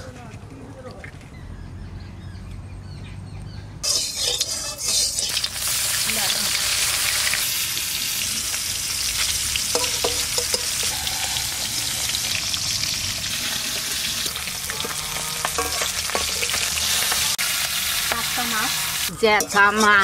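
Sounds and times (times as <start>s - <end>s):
metal spatula clinking on pan: 3.8s - 5.5s, 9.7s - 10.9s, 14.8s - 16.6s, 19.2s - 20.0s
fish sizzling in oil: 3.8s - 20.0s.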